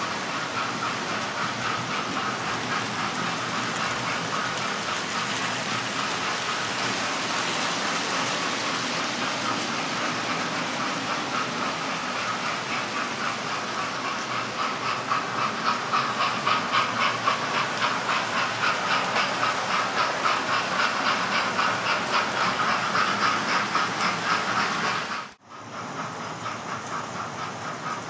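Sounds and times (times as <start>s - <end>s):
model train motors whirring: 0.0s - 28.0s.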